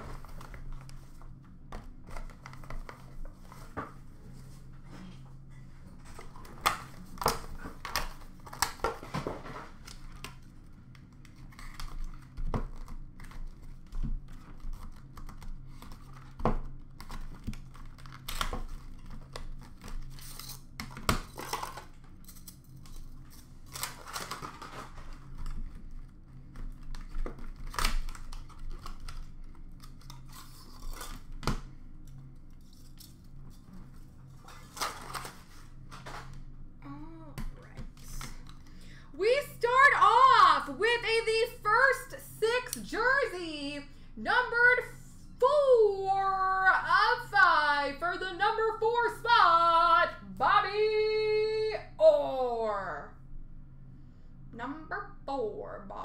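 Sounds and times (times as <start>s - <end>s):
plastic wrap tearing and crinkling: 6.4s - 33.5s, 34.3s - 36.4s.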